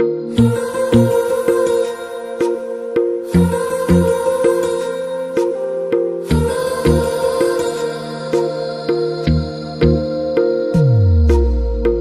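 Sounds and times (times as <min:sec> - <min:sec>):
slow melody over held tone: 0:00.0 - 0:12.0
deep bass notes: 0:10.8 - 0:12.0.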